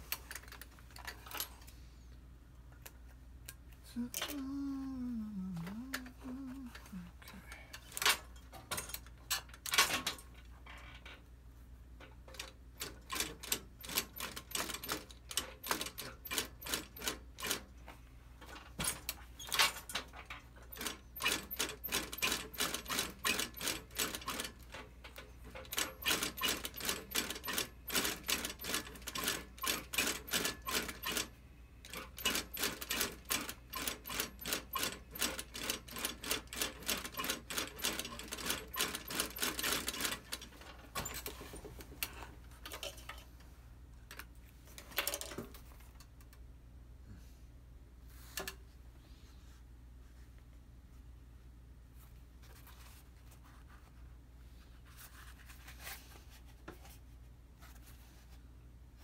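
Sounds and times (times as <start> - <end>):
sewing machine stitching clicks: 25.2 - 31.3, 31.9 - 41.6.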